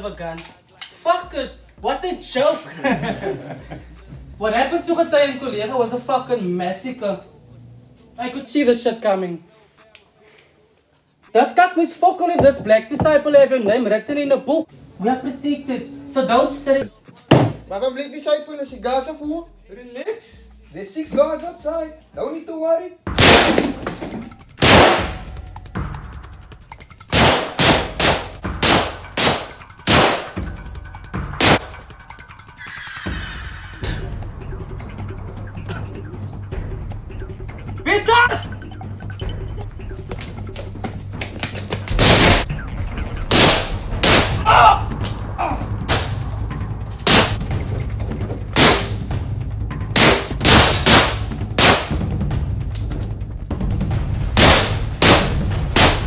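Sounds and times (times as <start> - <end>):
gunshots echoing: 23.1 - 25.3, 27.1 - 30.4, 31.4 - 31.8, 41.9 - 45.2, 45.9 - 46.2, 47.0 - 47.4, 48.5 - 49.1, 50.0 - 52.1, 54.4 - 56.0
handgun shots: 23.2 - 25.2, 27.1 - 30.4, 43.3 - 44.4, 48.6 - 49.0, 50.0 - 52.0, 54.4 - 56.0.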